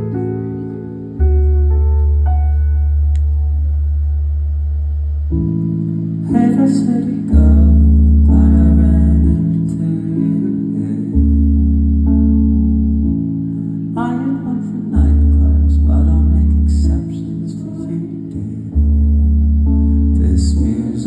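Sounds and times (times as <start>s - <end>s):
electric bass notes: 0.0s - 21.0s
sustained keyboard chords: 0.0s - 21.0s
man singing: 6.3s - 11.7s, 13.9s - 19.1s, 20.1s - 21.0s.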